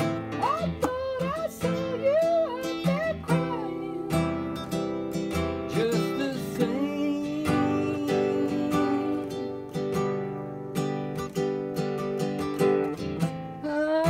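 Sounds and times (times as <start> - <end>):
man singing: 0.0 - 9.8, 13.6 - 14.0
acoustic guitar strumming chords: 0.0 - 14.0.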